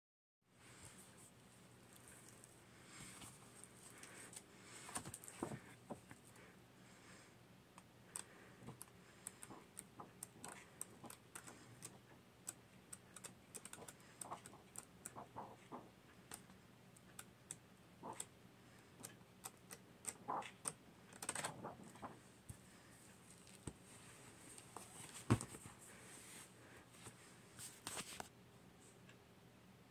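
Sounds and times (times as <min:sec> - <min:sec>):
book pages rustling: 0:01.9 - 0:06.2, 0:20.1 - 0:22.2, 0:23.2 - 0:28.3.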